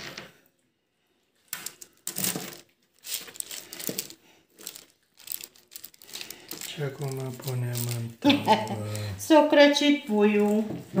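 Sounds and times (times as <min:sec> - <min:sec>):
parchment paper crinkling: 0:01.4 - 0:09.2.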